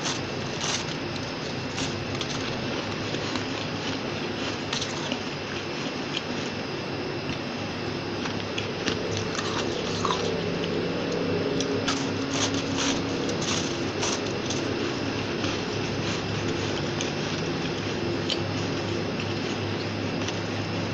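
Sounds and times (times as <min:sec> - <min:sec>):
crisp crunches of biting frost: 0:08.3 - 0:10.7, 0:11.6 - 0:19.6.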